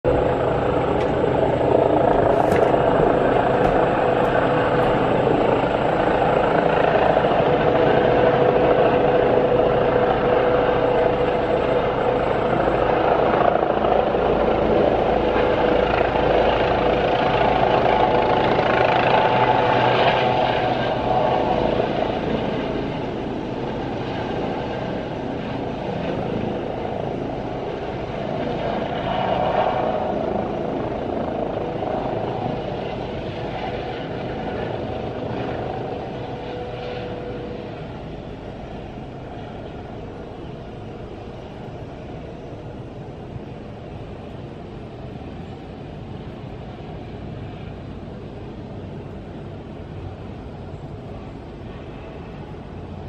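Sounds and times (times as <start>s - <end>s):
helicopter rotor and engine drone: 0.0s - 53.0s.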